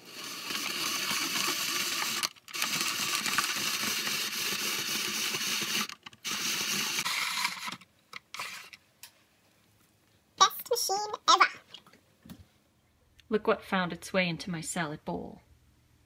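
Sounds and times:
spiralizer grinding zucchini: 0.0 - 7.8.

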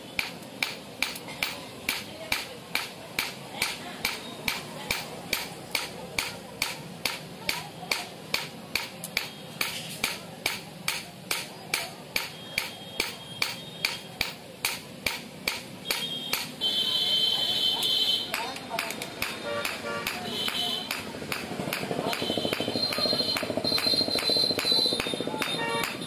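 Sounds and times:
hammer ringing on metal blade: 0.2 - 16.5.

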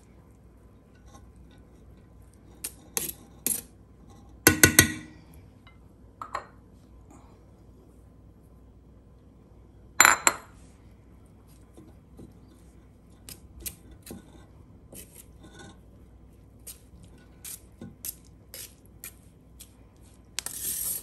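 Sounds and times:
spoon scraping metal strainer: 2.5 - 4.2, 13.2 - 15.8, 16.7 - 19.2, 20.3 - 21.0.

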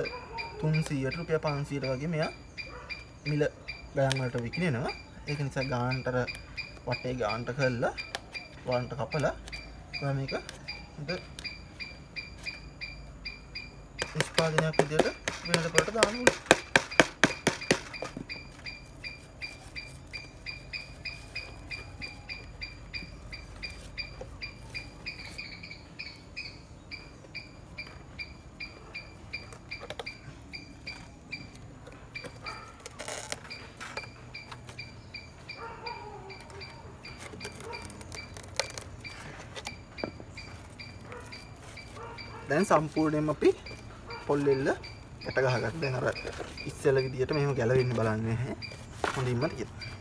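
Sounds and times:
animal chirping: 0.0 - 50.0
hands handling coconut husk: 14.0 - 26.3, 27.0 - 35.0, 35.6 - 50.0.

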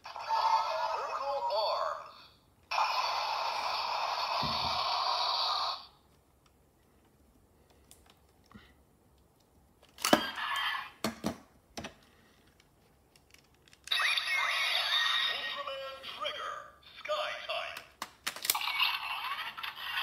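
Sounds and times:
toy electronic sound effects: 13.9 - 16.2, 18.5 - 20.0
plastic clicks and rattling: 17.8 - 18.6.

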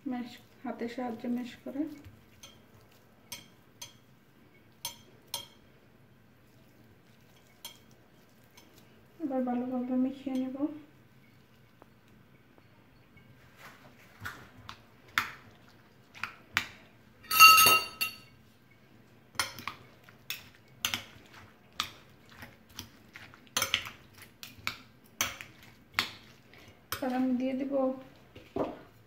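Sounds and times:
metal spoon clinking on glass bowl: 17.2 - 18.3.

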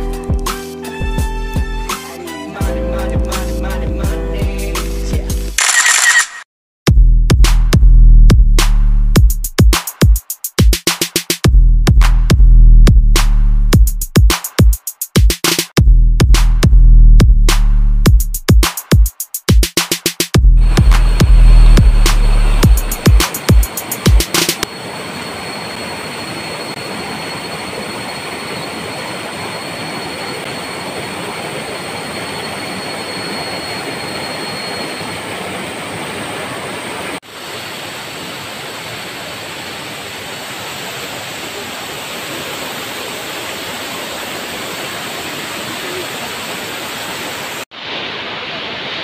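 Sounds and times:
waterfall roaring: 22.0 - 49.0.

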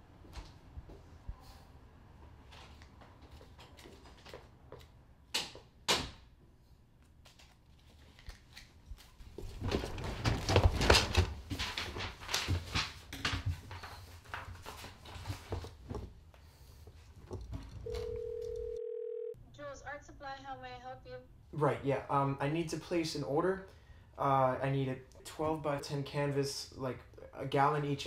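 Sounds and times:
paper rustling: 7.2 - 15.9.

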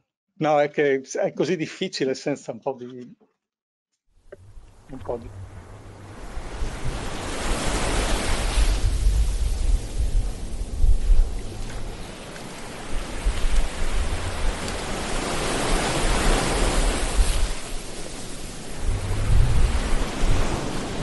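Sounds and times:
low rumble of breaking wave: 4.4 - 21.0
ocean waves washing in: 4.4 - 21.0.

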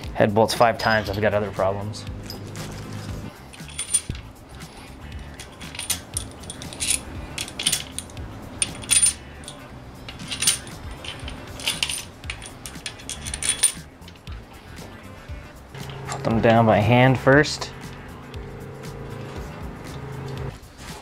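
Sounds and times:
metal bolts clinking: 0.7 - 1.5, 2.2 - 2.7, 3.3 - 14.4.

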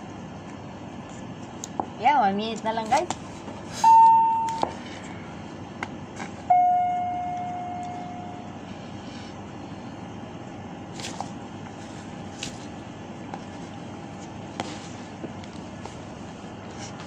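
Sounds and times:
steady background noise: 0.0 - 17.0
electronic tone: 3.8 - 4.6, 6.5 - 8.6
ringing tone: 3.8 - 4.6, 6.5 - 8.5.

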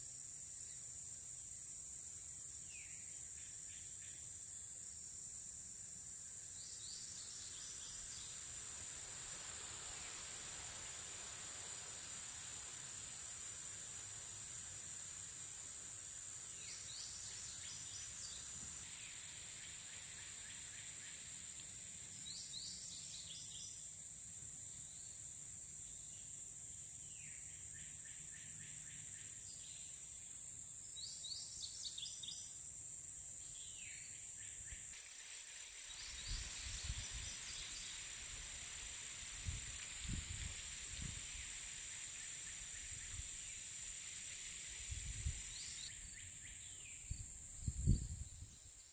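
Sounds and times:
high-pitched insect drone: 33.6 - 48.9
wind buffeting microphone: 47.2 - 48.6.

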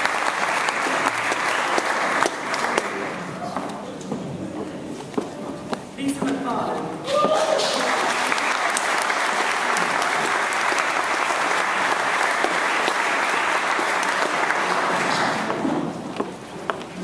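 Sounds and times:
audience applause: 0.0 - 3.2, 7.4 - 15.9.

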